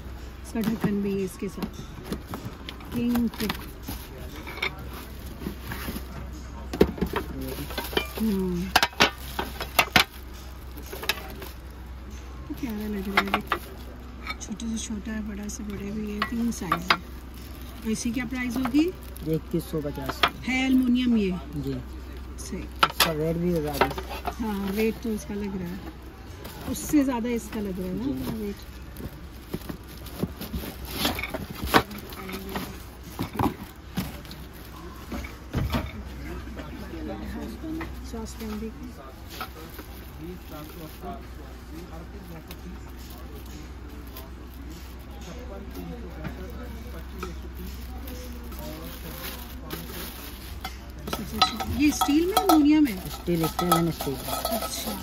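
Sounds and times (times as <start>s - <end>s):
cooking pots clicking and knocking: 0.0s - 36.7s, 50.5s - 55.0s
murmur of voices: 0.0s - 55.0s
pot and lid clinking: 50.6s - 55.0s.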